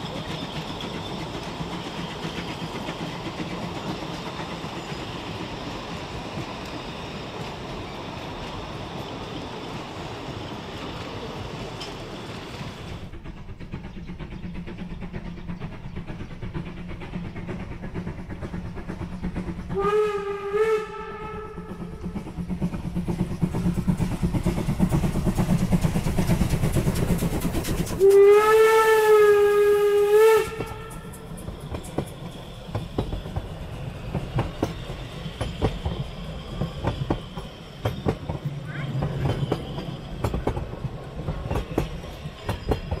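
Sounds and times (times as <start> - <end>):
wheels clicking over rail joints: 0.0 - 19.8, 30.4 - 43.0
steam locomotive running: 0.0 - 43.0
steam whistle: 19.7 - 22.0, 28.0 - 31.2.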